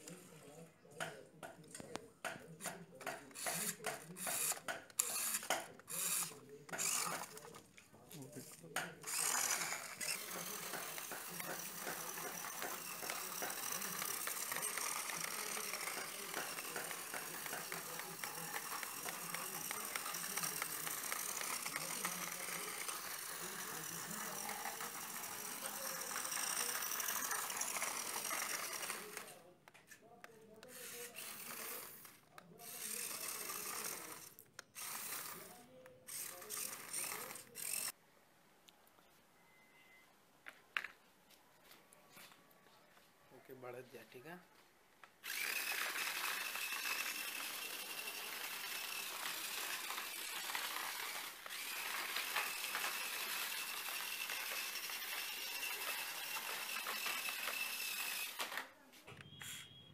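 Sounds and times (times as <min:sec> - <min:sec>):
small geared motors running: 0:02.6 - 0:29.4, 0:30.6 - 0:38.0, 0:45.2 - 0:58.7.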